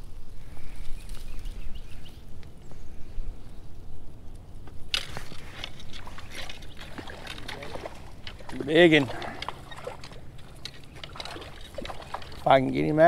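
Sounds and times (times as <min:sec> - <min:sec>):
water sloshing and splashing: 0:05.2 - 0:13.0.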